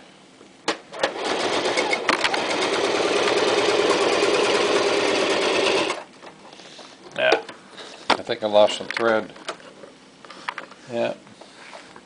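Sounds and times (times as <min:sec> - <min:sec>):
sewing machine clattering: 0:01.0 - 0:06.0.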